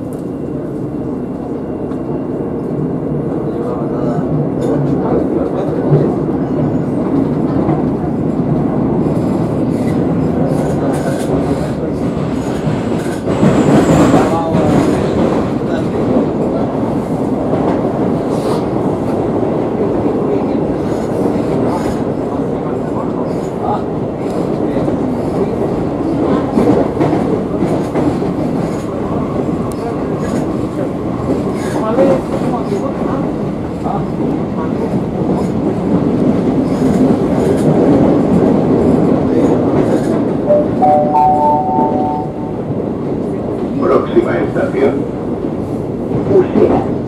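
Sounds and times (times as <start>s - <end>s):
train wheels on rails: 0.0s - 47.0s
three-note rising chime: 40.5s - 42.6s.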